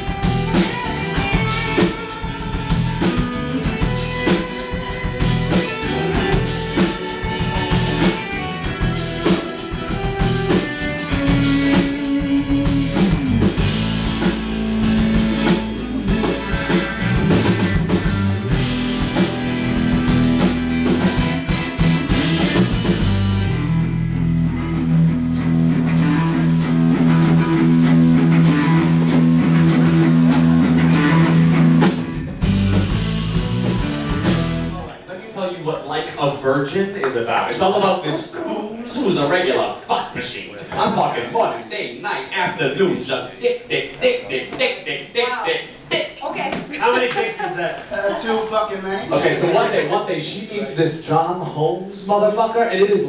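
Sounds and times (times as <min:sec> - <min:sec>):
electric guitar: 0:00.0 - 0:34.9
bass guitar: 0:00.0 - 0:35.0
drum kit: 0:00.0 - 0:35.0.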